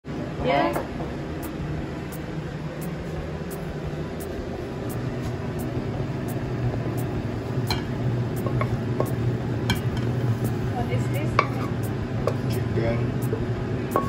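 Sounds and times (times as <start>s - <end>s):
low hum: 0.0s - 14.0s
wok clinking against plate: 7.7s - 10.2s, 11.3s - 12.6s.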